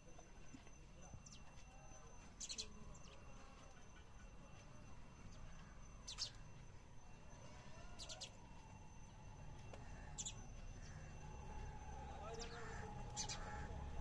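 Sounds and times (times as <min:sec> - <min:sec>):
sparrows chirping: 0:00.8 - 0:06.9, 0:07.5 - 0:08.5, 0:09.7 - 0:14.0.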